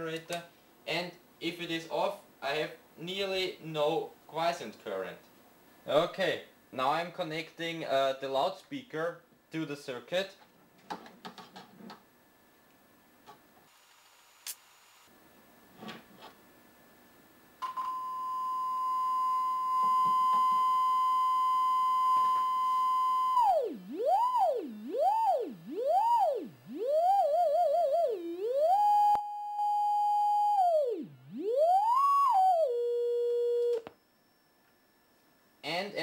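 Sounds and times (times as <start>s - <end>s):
loudspeaker test tone sweeping: 18.3s - 33.9s.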